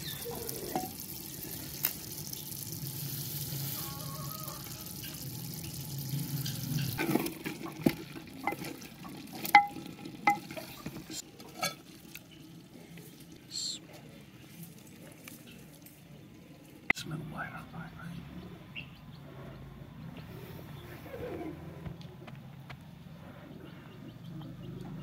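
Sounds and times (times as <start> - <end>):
curry sizzling and bubbling: 0.0 - 17.0
wooden spoon knocking clay pot: 9.4 - 10.7.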